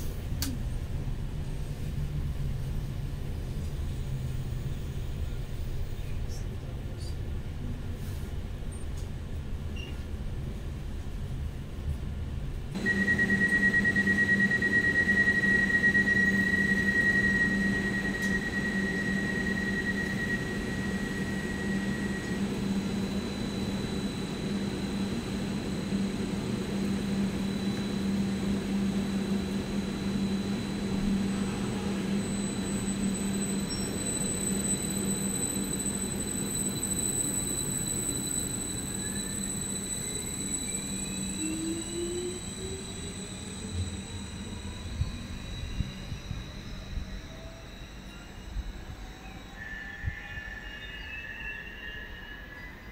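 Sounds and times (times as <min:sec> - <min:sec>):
train equipment low hum: 0:00.0 - 0:52.9
train whine rising in pitch: 0:12.5 - 0:52.9
high steady tone: 0:12.8 - 0:52.9.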